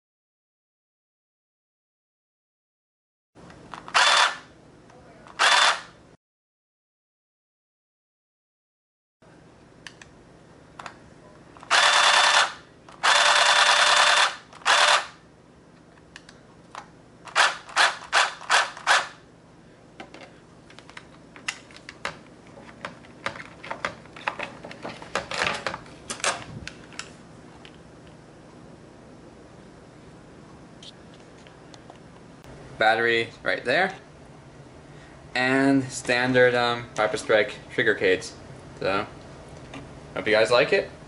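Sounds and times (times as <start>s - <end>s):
electric motors whining: 3.8s - 4.4s, 5.3s - 5.9s, 11.6s - 15.2s
short motor pulses: 3.9s - 4.4s, 5.4s - 5.9s, 11.7s - 15.2s.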